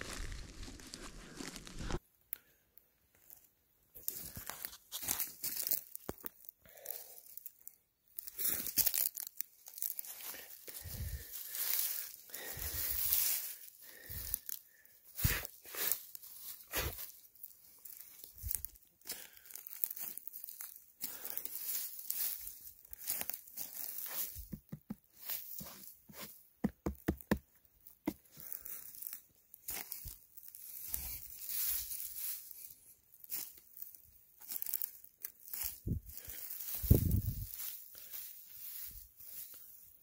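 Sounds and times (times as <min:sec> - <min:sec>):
pine needles crunching underfoot: 0:00.0 - 0:02.0, 0:03.1 - 0:40.0
fingers tapping mushroom cap: 0:24.5 - 0:25.0, 0:26.6 - 0:27.4.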